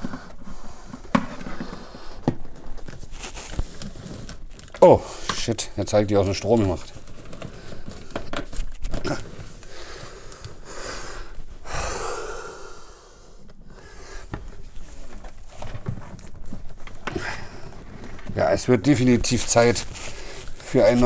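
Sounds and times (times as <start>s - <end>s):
man breathing heavily: 9.4s - 14.8s, 20.0s - 20.6s.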